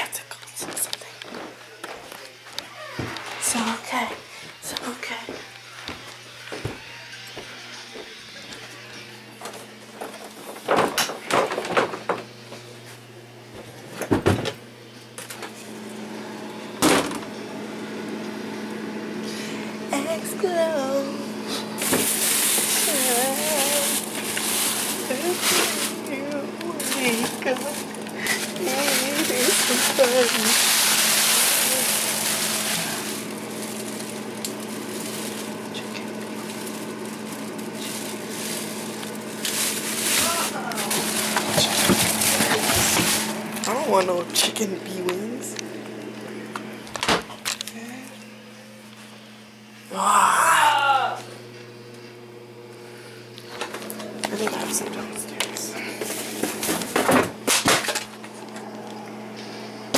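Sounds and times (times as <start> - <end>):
steady low hum: 12.1 - 59.9.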